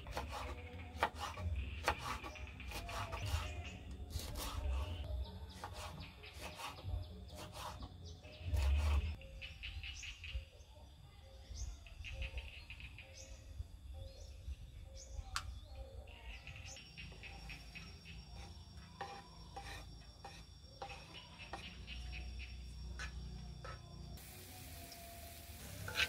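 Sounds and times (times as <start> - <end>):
birds chirping: 11.4 - 26.0.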